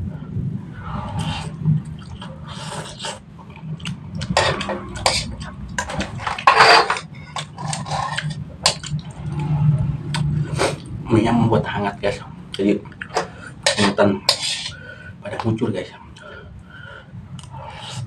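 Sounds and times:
slurping and chewing: 1.0s - 10.9s
metal spoon scraping a wok: 4.2s - 9.0s, 13.2s - 14.8s.

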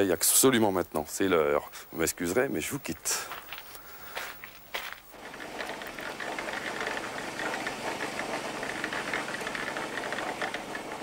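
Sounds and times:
concrete mixer engine running: 5.1s - 11.0s.

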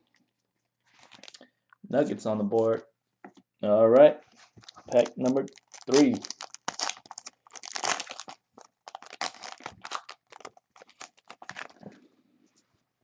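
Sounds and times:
foil wrapper crinkling and tearing: 1.0s - 1.4s, 4.4s - 11.8s.

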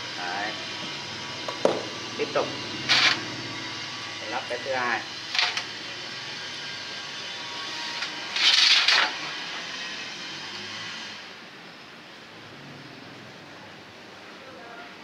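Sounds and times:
metal scrape: 2.8s - 3.3s, 4.2s - 11.2s.

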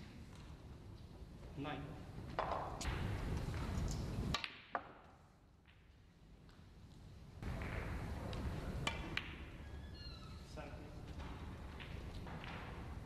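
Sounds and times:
low room hum: 0.0s - 13.0s
snooker balls clicking: 2.2s - 9.8s, 11.0s - 13.0s.

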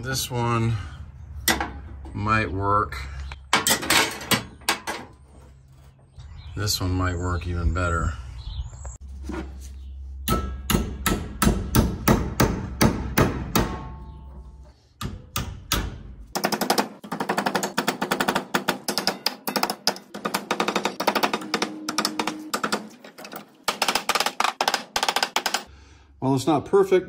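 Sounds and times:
hammer striking metal rod: 10.3s - 14.1s, 15.0s - 16.0s, 17.6s - 25.7s.

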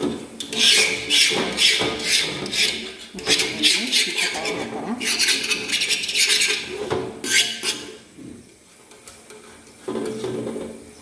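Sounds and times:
knife scraping a pan rim: 0.4s - 8.0s.

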